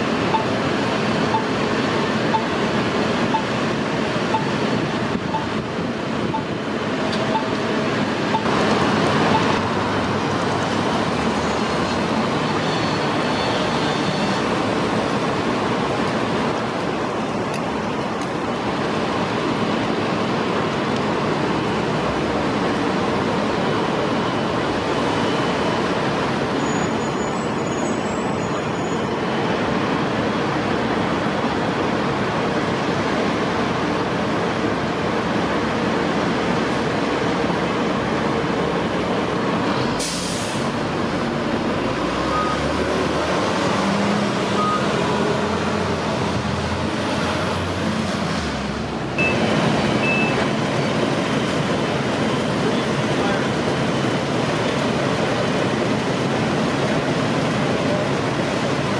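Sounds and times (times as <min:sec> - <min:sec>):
fire engine rumbling: 0:00.0 - 0:58.9
street traffic noise: 0:00.0 - 0:58.9
air brake hiss: 0:40.0 - 0:40.7.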